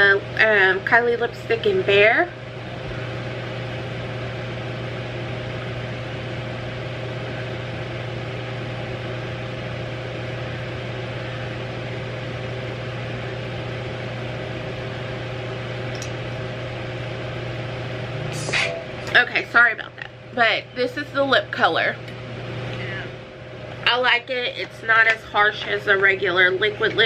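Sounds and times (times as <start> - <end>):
low machine drone: 0.0 - 27.0
steady higher tone: 18.0 - 19.4.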